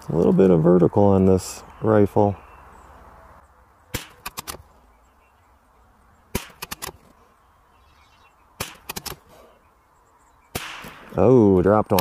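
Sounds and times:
rifle shots: 3.9s - 4.6s, 6.3s - 7.0s, 8.6s - 9.2s, 10.5s - 11.2s.

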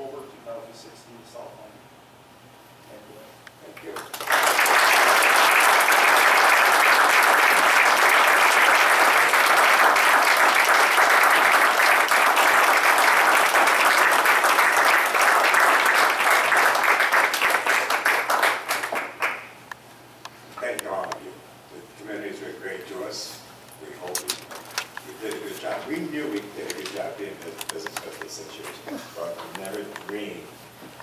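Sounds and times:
audience applauding: 3.9s - 19.6s.

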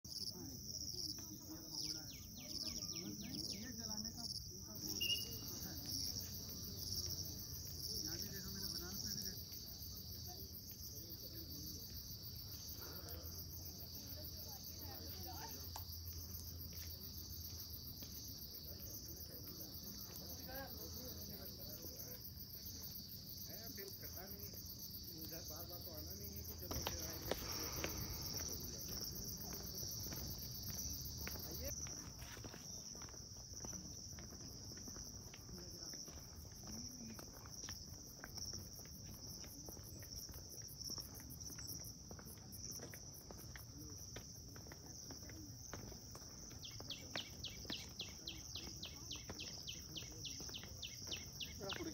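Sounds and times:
insects trilling: 1.7s - 35.5s, 46.0s - 51.9s.

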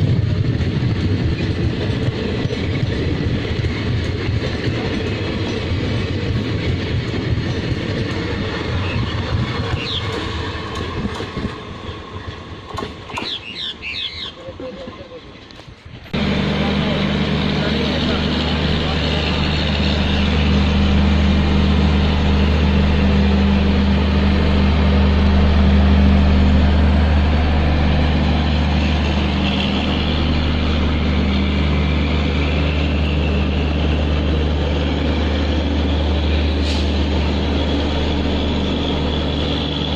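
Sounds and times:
vehicle engine drone: 16.1s - 39.9s.

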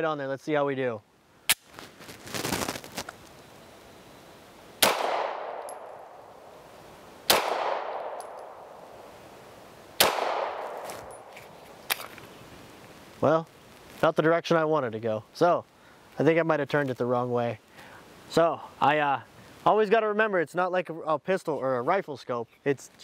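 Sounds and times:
pistol shots with echo: 4.8s - 6.1s, 7.3s - 8.8s, 10.0s - 11.3s.

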